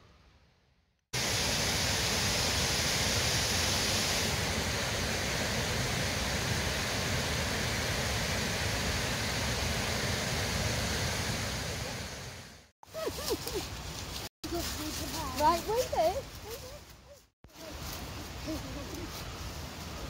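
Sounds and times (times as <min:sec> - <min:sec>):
rushing stream: 0:01.2 - 0:16.4.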